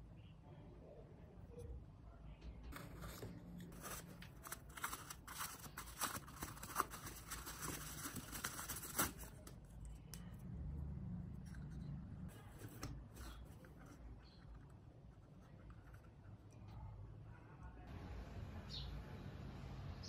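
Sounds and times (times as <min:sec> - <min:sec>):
tissue paper rustling: 0:02.8 - 0:09.4
low hum: 0:09.6 - 0:12.4.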